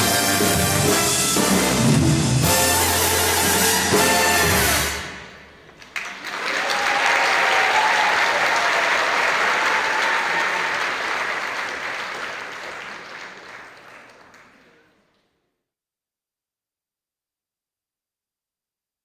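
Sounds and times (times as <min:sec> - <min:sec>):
audience applauding: 0:05.7 - 0:15.3.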